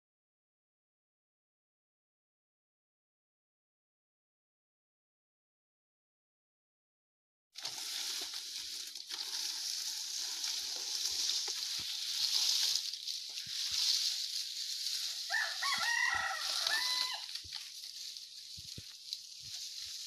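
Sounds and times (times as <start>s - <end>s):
rooster crowing: 15.3s - 17.3s.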